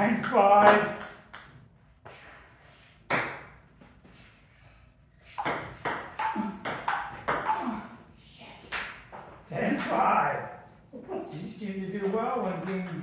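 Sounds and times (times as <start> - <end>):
table tennis ball hits: 0.0 - 1.6, 3.1 - 3.6, 5.4 - 7.8, 8.7 - 10.1, 12.4 - 13.0.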